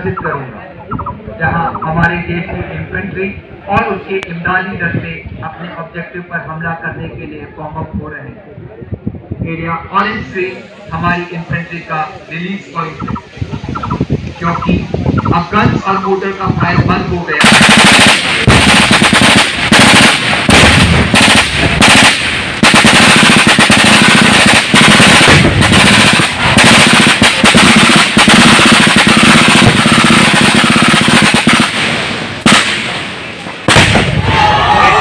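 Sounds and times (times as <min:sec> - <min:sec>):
machine guns firing bursts: 0:17.4 - 0:33.0
explosions: 0:17.4 - 0:34.8.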